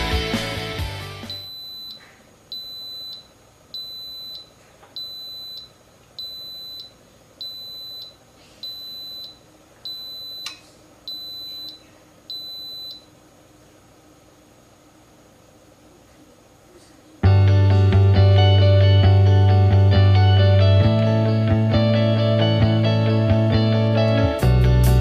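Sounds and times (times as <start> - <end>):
background music: 0.0 - 1.4, 17.2 - 25.0.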